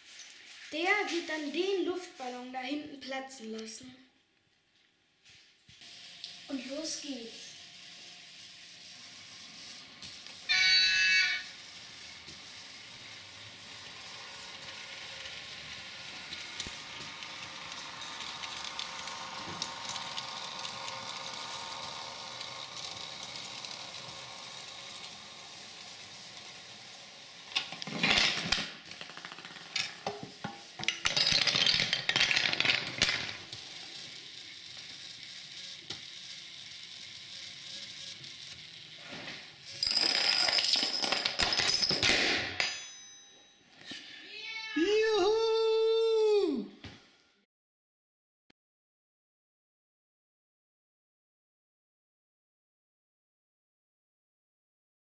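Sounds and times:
model train motor hum: 5.7 - 28.0, 33.2 - 39.8
dominoes toppling and knocking: 10.9 - 36.1, 39.7 - 42.5
marbles rolling and dropping: 13.7 - 34.9, 39.6 - 42.9
train wheel clicks: 13.8 - 26.7.

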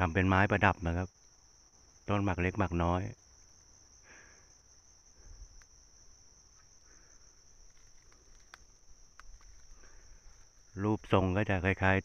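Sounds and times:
insect trilling: 0.0 - 12.0
faint clicks: 5.5 - 5.8, 7.6 - 10.6.

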